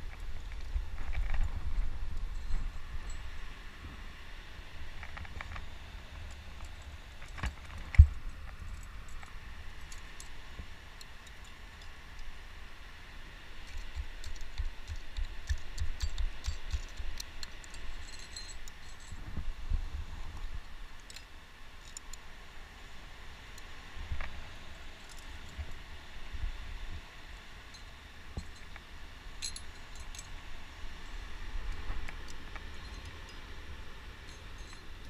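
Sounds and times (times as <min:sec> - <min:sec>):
climbing gear clinking: 0:00.1 - 0:03.6, 0:05.0 - 0:12.3, 0:13.6 - 0:19.4, 0:20.6 - 0:22.2, 0:27.7 - 0:35.0
small clicks and scuffs: 0:05.0 - 0:10.3.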